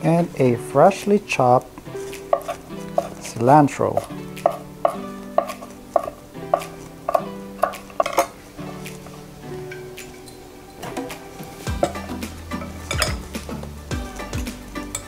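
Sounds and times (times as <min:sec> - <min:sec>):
background music with held notes: 0:00.0 - 0:15.0
knife chopping on wooden board: 0:02.3 - 0:03.2, 0:04.0 - 0:08.2.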